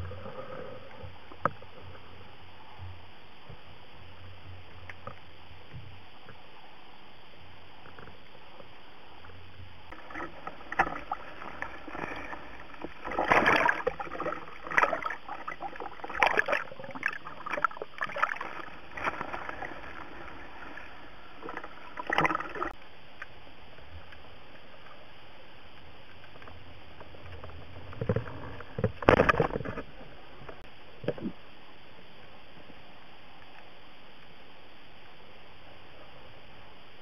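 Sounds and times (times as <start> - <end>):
steady hiss: 0.0 - 29.0, 29.7 - 37.0
water splashing and sloshing: 7.2 - 31.4.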